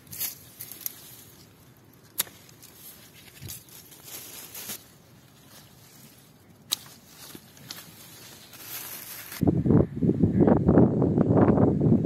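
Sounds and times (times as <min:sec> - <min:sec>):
clicks and leaves rustling: 0:00.0 - 0:09.4
pruning shears snipping: 0:00.0 - 0:09.4.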